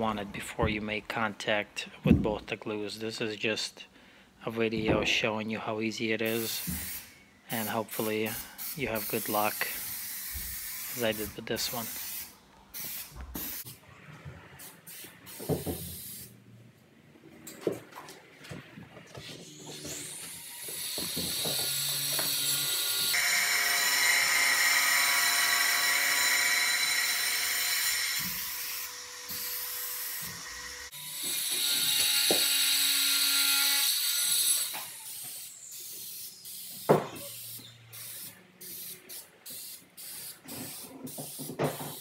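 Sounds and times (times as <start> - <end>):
aerosol spray hissing: 36.4 - 42.0.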